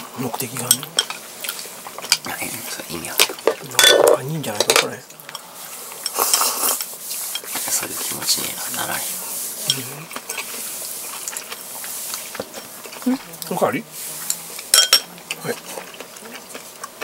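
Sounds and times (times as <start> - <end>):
close-up chewing: 5.0 - 17.0.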